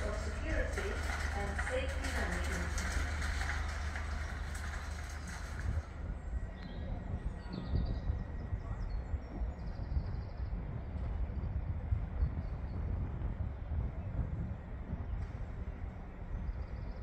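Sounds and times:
low hum: 0:00.0 - 0:17.0
wind buffeting microphone: 0:00.0 - 0:17.0.

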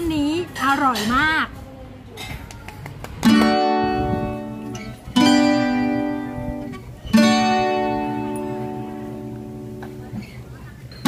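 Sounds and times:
strummed acoustic guitar chords: 0:03.2 - 0:11.0.

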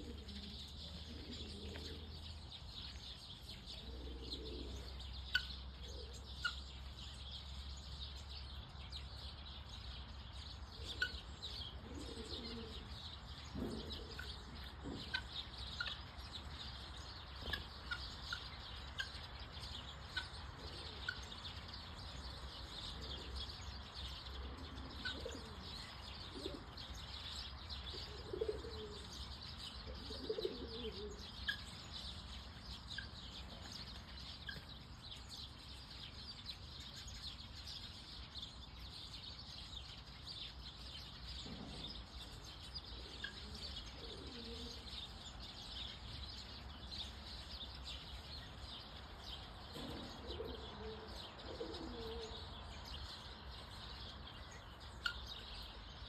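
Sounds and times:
low cooing calls: 0:00.0 - 0:02.4, 0:03.5 - 0:06.7, 0:10.8 - 0:16.0, 0:22.4 - 0:27.0, 0:27.8 - 0:31.9, 0:41.5 - 0:45.8, 0:49.6 - 0:53.5
small birds chirping: 0:00.0 - 0:56.0.

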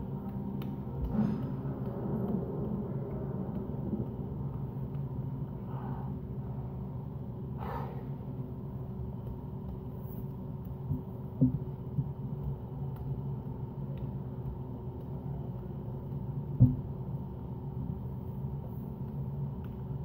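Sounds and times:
soft breaths: 0:00.0 - 0:11.1
faint steady tones: 0:00.0 - 0:20.0
low room hum: 0:00.0 - 0:20.0.

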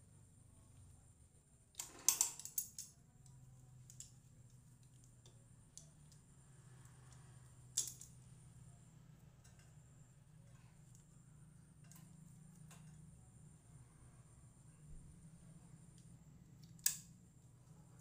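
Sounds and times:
faint low hum: 0:00.0 - 0:18.0
light sharp clicks and taps: 0:02.4 - 0:08.2.

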